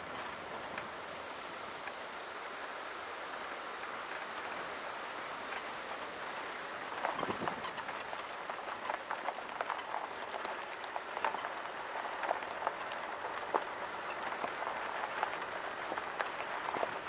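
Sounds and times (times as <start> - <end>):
tyres crunching on gravel: 7.0 - 17.0.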